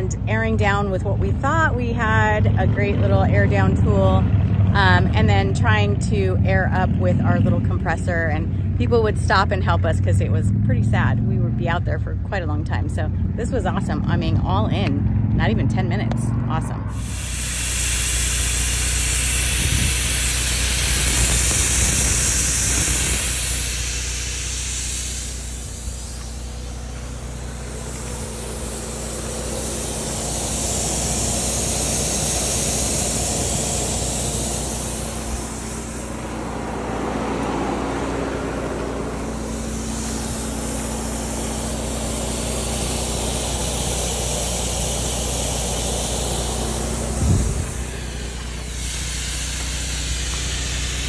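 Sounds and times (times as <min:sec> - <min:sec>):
air hissing out of tyre: 0:16.9 - 0:51.0.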